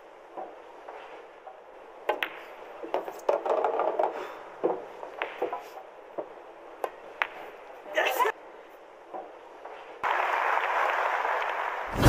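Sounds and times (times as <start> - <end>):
pool balls clattering: 2.0 - 5.6.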